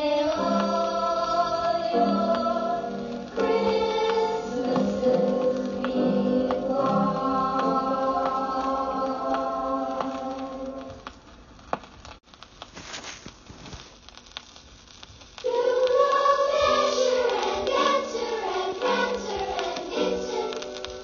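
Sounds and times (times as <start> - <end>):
choral chord: 0.0 - 10.9, 15.5 - 21.0
voices singing with music: 0.0 - 11.1, 15.4 - 21.0.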